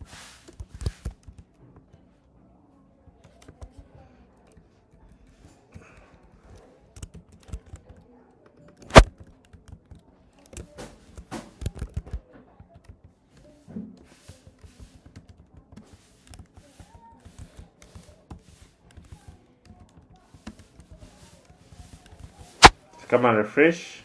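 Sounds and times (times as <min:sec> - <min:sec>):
computer keyboard typing: 0:05.8 - 0:13.2, 0:14.5 - 0:15.6, 0:16.2 - 0:21.2.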